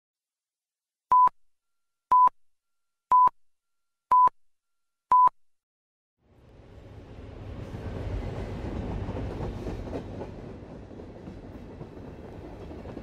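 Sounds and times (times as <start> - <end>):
short electronic beeps: 1.1 - 1.4, 2.1 - 2.4, 3.1 - 3.4, 4.1 - 4.4, 5.1 - 5.4.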